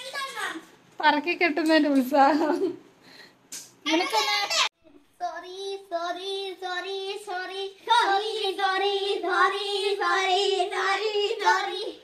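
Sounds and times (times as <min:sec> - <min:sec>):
child singing a chant: 0:05.1 - 0:12.0.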